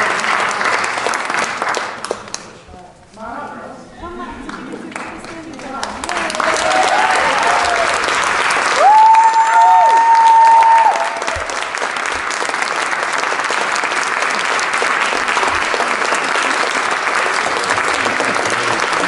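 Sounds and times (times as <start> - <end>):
audience applauding: 0.0 - 2.6, 4.5 - 19.0.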